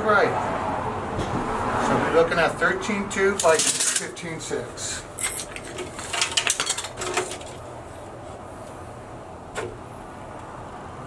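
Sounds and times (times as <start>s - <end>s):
tape measure rattling on drywall: 3.4s - 4.1s, 5.2s - 7.7s.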